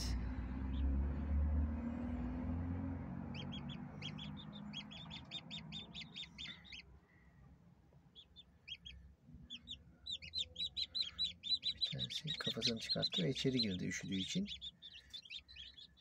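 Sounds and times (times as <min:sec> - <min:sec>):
chick peeping: 0:03.3 - 0:06.9, 0:08.1 - 0:16.0.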